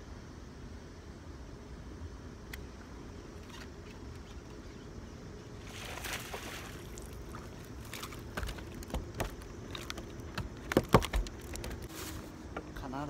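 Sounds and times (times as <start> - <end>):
steady low hum: 0.0 - 13.0
knocks and thumps: 8.2 - 11.9.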